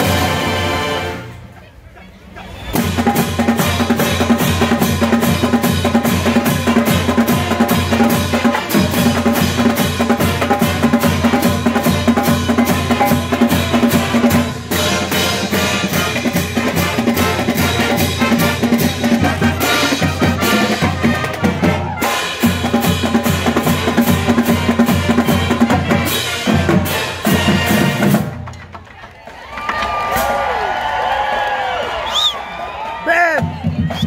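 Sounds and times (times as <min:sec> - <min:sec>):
snare and tenor drums: 0:00.0 - 0:01.3, 0:02.6 - 0:29.1, 0:33.3 - 0:34.0
brass band playing: 0:00.0 - 0:01.6, 0:02.6 - 0:28.5
cymbals: 0:02.6 - 0:28.4.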